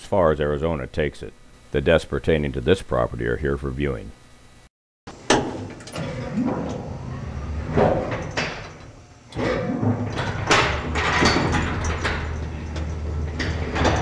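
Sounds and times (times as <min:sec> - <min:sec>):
elevator door and gate sliding: 0:05.1 - 0:14.0
elevator running hum: 0:05.1 - 0:14.0
elevator knocks and rattles: 0:05.2 - 0:14.0.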